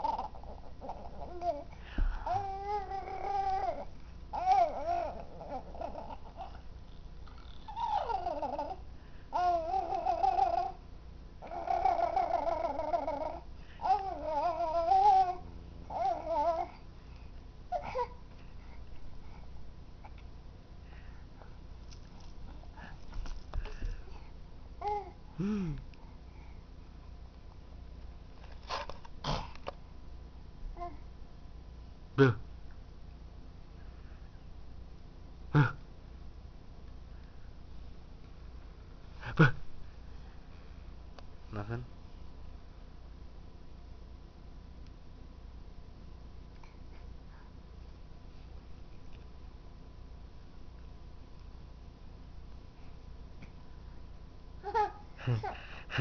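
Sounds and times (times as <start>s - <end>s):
baby cooing and babbling: 0.0s - 6.6s, 7.3s - 10.8s, 11.4s - 16.8s, 17.7s - 18.2s, 24.8s - 25.2s, 30.8s - 31.0s, 54.6s - 55.7s
person voicing ooh: 25.4s - 25.8s.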